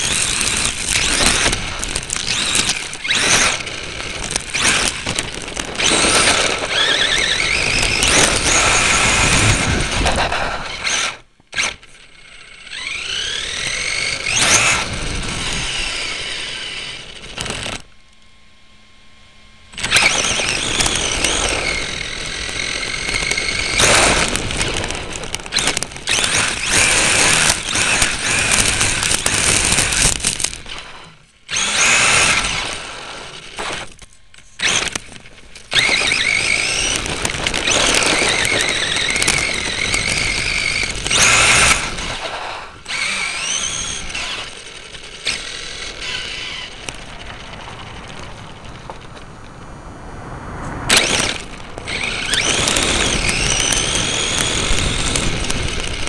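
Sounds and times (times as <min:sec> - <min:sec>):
tyres crunching over gravel: 0:00.0 - 0:11.0, 0:33.6 - 0:49.7, 0:50.9 - 0:56.0
electric motor and gears whining: 0:00.0 - 0:56.0.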